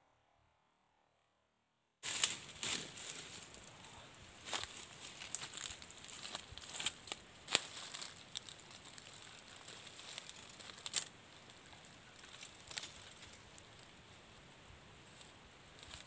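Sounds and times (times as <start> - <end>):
footsteps in dry leaves: 2.0 - 14.1
wood fire crackling: 2.0 - 16.0.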